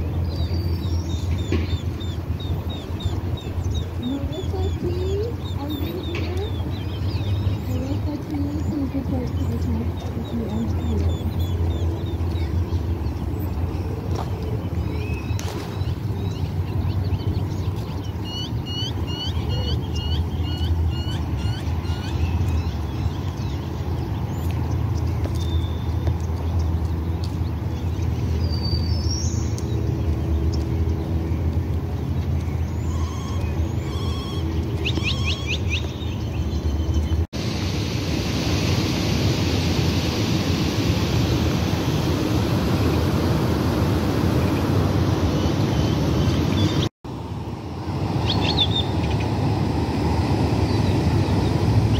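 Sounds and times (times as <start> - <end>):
small birds chirping: 0.0 - 37.3, 44.3 - 46.9
steady rushing hiss: 37.4 - 48.3.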